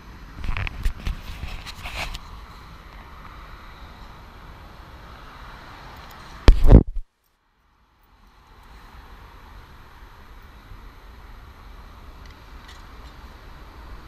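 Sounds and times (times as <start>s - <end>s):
wind on microphone: 6.4s - 7.0s.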